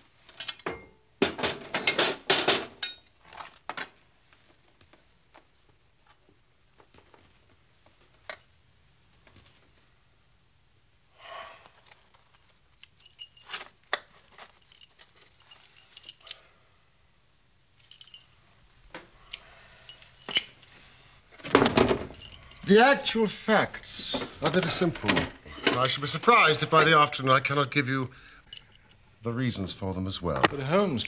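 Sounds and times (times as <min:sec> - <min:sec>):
metallic clinks ringing: 0:17.8 - 0:18.4, 0:19.2 - 0:20.6, 0:22.0 - 0:23.2, 0:28.5 - 0:29.0
soft breathy sound: 0:19.1 - 0:21.4.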